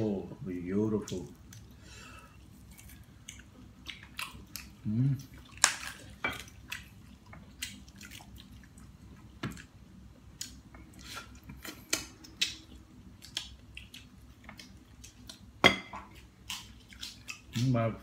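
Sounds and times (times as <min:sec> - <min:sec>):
wet clicks of tearing meat: 0:05.4 - 0:06.1, 0:11.8 - 0:15.5.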